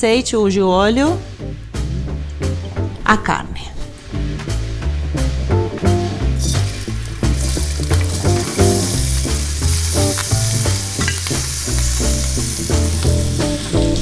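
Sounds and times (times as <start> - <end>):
background music with bass line: 0.0 - 14.0
beef sizzling in a hot pan: 6.3 - 14.0.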